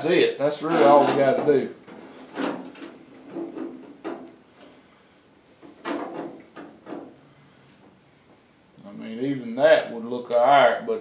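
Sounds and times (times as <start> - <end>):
light metal scrapes: 0.5 - 4.0.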